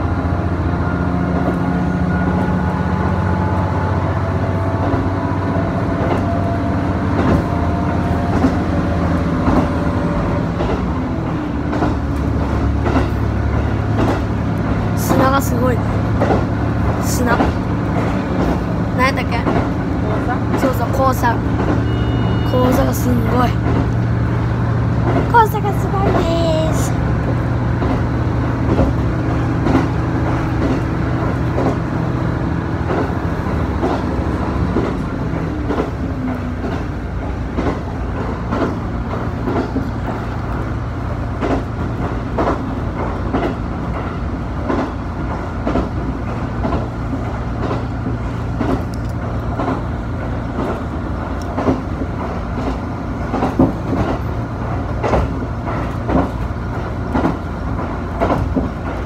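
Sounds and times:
railcar engine drone: 0.0s - 59.0s
wheels clacking over rail joints: 4.3s - 59.0s.

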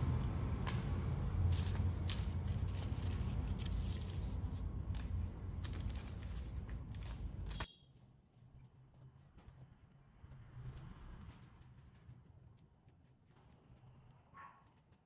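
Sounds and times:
parchment paper crinkling: 1.5s - 7.6s.

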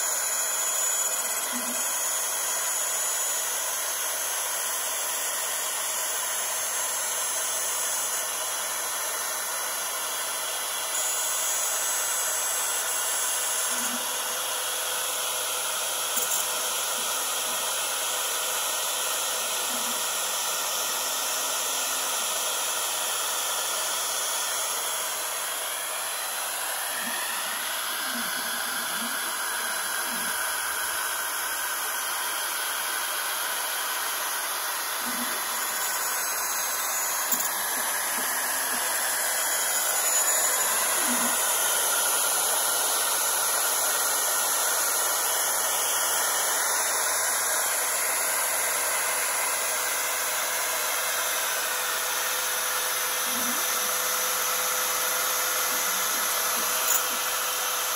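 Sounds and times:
router spindle whirring: 0.0s - 57.9s.

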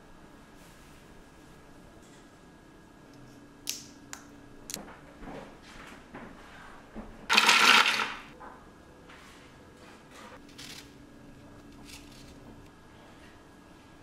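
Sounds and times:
nuts rattling into plastic bowl: 7.3s - 8.3s.

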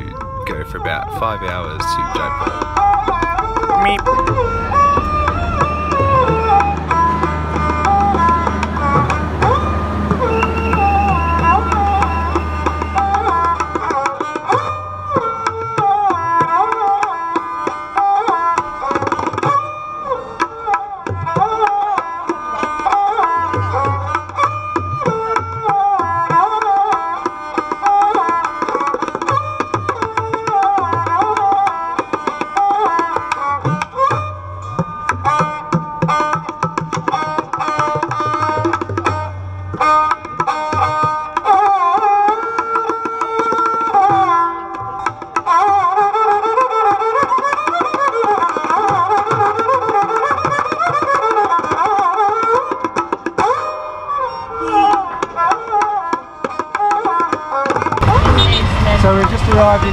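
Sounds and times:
sliding melody: 0.0s - 15.4s
tabla drums: 0.0s - 59.9s.

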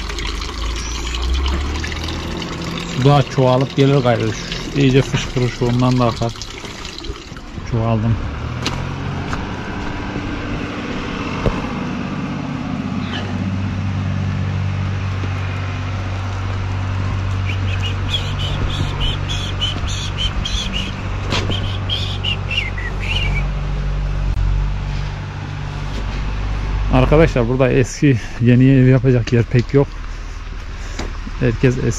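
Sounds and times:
tractor engine running: 0.0s - 31.9s
bird chirping rapidly: 0.6s - 1.4s, 17.4s - 23.5s.

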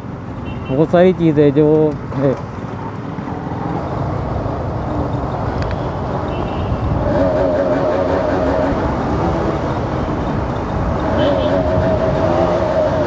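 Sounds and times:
wind rushing over microphone: 3.2s - 13.0s.

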